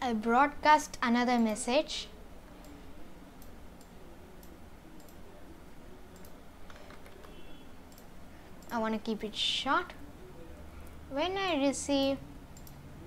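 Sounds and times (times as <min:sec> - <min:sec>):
low steady hum: 0:00.0 - 0:13.0
computer mouse clicks: 0:02.6 - 0:02.8, 0:03.4 - 0:05.3, 0:06.1 - 0:08.8, 0:12.5 - 0:12.9.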